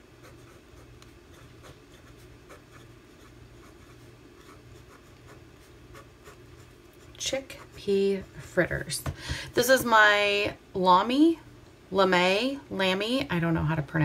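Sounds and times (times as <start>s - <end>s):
pen nib scratching paper: 0.2s - 8.6s.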